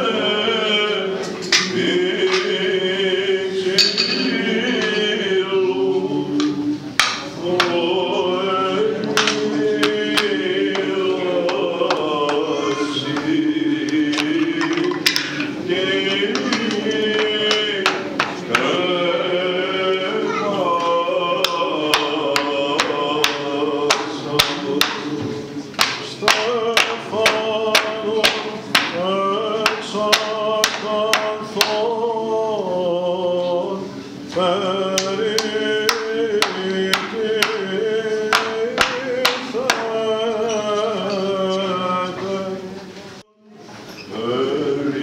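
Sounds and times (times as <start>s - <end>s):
male voices chanting a hymn: 0.0s - 43.3s, 44.1s - 45.0s
hammer knocking on wood: 21.4s - 29.0s, 38.3s - 39.9s.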